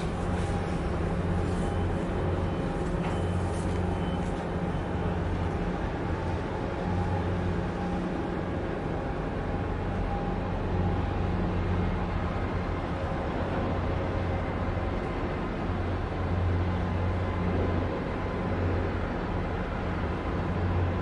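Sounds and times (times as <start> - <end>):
ship diesel engines droning: 0.0 - 21.0.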